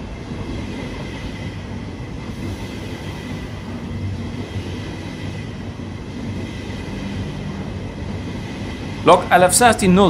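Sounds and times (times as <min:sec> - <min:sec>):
train rolling on rails: 0:00.0 - 0:10.0.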